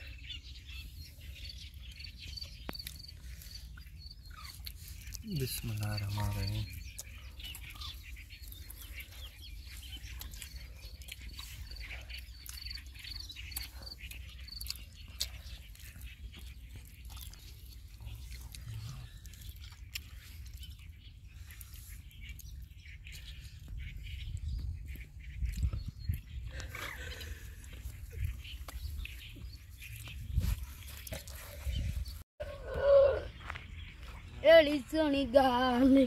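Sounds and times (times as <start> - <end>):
bird chirping: 0.0 - 36.0
eating with hands clicks: 2.6 - 3.1, 6.8 - 8.8, 10.0 - 20.9.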